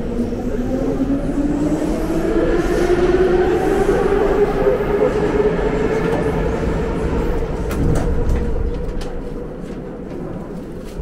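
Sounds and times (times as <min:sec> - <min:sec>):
wheels rumbling on rails: 0:00.0 - 0:11.0.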